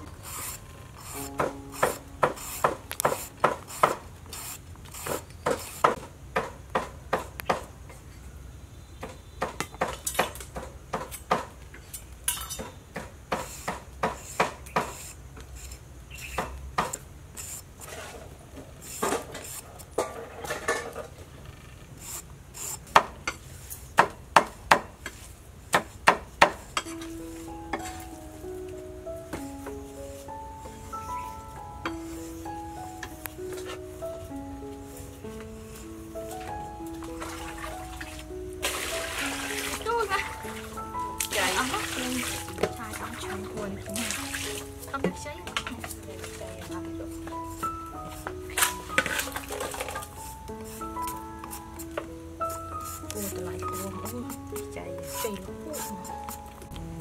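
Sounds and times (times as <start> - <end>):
peeler scraping gourd skin: 0.0 - 6.0, 13.4 - 16.6, 17.3 - 19.9, 22.0 - 23.0, 52.4 - 56.9
plucked string music: 1.1 - 3.6, 26.9 - 57.0.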